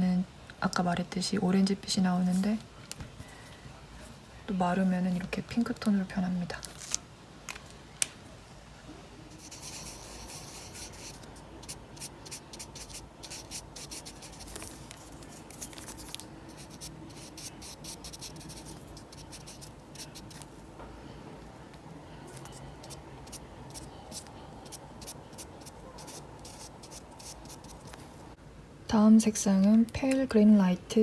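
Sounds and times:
marker rubbing on paper: 0:09.3 - 0:20.5, 0:22.3 - 0:28.0.

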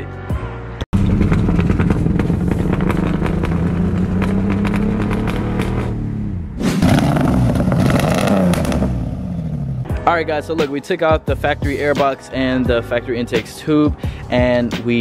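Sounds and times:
engine misfire popping: 0:00.9 - 0:09.6
car engine running rough: 0:00.9 - 0:09.9.

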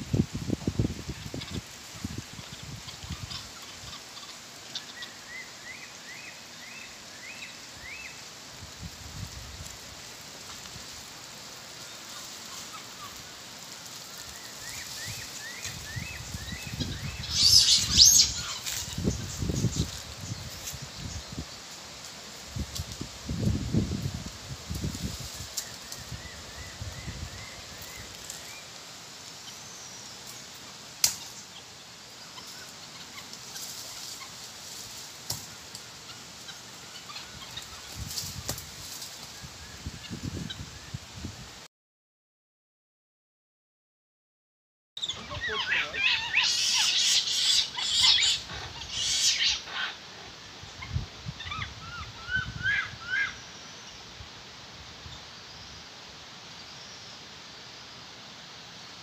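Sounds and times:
monkey chirps: 0:45.0 - 0:50.0
monkey screeching: 0:45.0 - 0:50.0.

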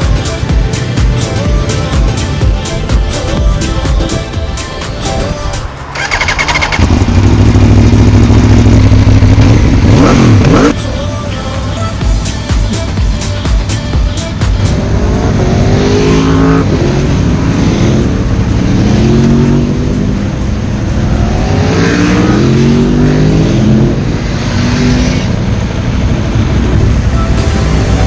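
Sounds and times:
motorcycles accelerating away: 0:05.9 - 0:10.8, 0:14.7 - 0:20.3, 0:21.0 - 0:25.4.

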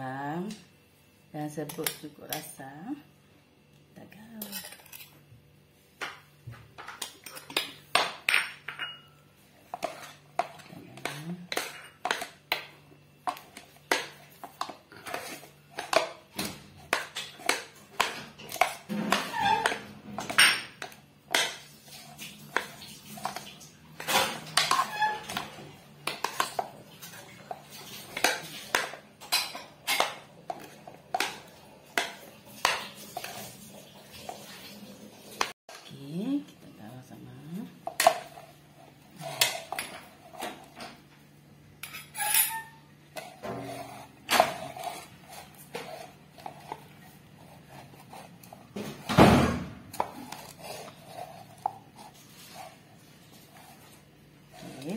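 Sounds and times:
metal spoon scraping a bowl: 0:04.4 - 0:05.2, 0:09.7 - 0:12.4, 0:13.3 - 0:16.1, 0:16.8 - 0:33.6, 0:37.9 - 0:40.7, 0:41.8 - 0:49.0, 0:49.9 - 0:54.9.

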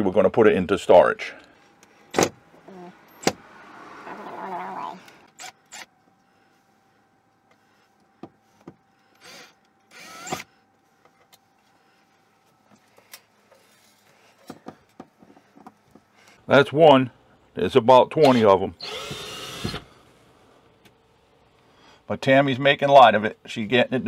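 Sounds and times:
cordless drill whirring: 0:09.2 - 0:10.5, 0:18.2 - 0:19.9.

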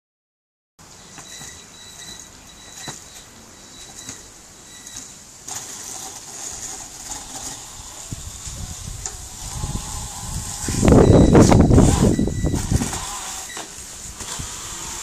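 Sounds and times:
electric motor whine: 0:05.5 - 0:15.0.

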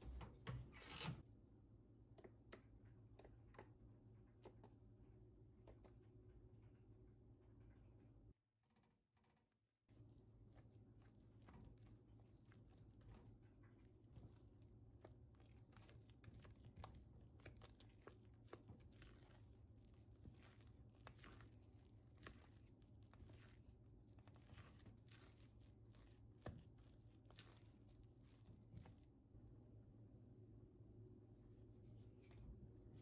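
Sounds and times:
small clicks and taps: 0:02.2 - 0:03.8, 0:04.4 - 0:04.8
crinkling and tearing: 0:10.0 - 0:29.1.

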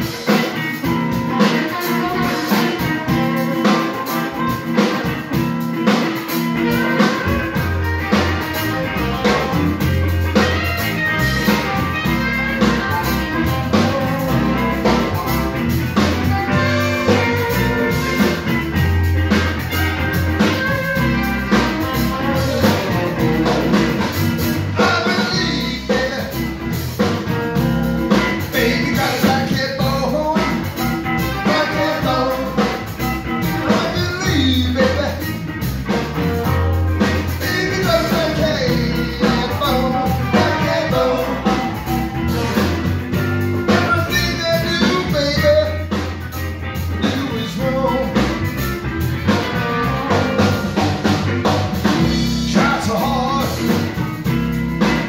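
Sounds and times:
blues-rock band playing: 0:00.0 - 0:55.0
electric guitars: 0:00.0 - 0:55.0
person singing: 0:24.6 - 0:26.4, 0:28.4 - 0:35.4, 0:37.3 - 0:42.1, 0:43.7 - 0:46.1, 0:46.8 - 0:48.4, 0:52.1 - 0:54.0.

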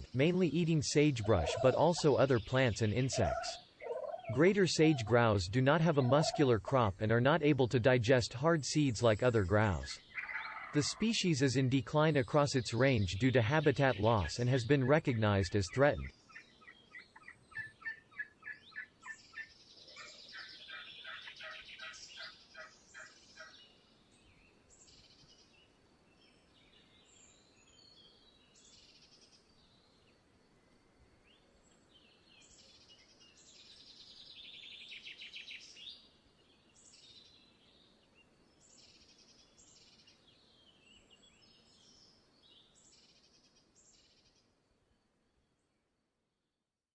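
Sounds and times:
grouse display pulses: 0:01.2 - 0:06.5.

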